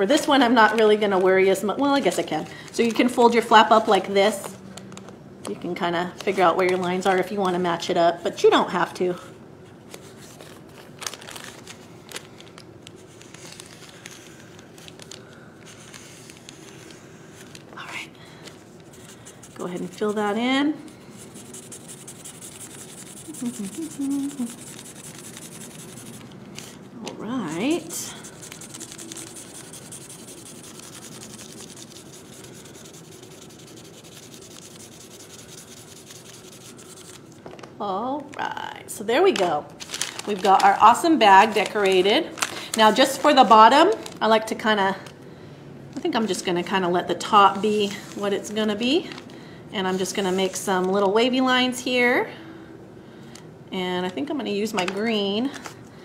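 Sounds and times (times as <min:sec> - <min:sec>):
paper bag rustling: 0:10.0 - 0:20.0, 0:21.1 - 0:33.8, 0:39.2 - 0:44.4
marker scratching on paper: 0:21.2 - 0:26.2, 0:27.5 - 0:37.2.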